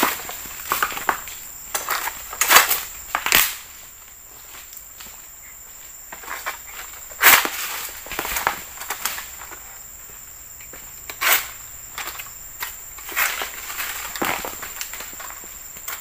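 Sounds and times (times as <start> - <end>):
dry fronds crunching: 0.0 - 5.4, 10.7 - 16.0
high insect drone: 0.0 - 16.0.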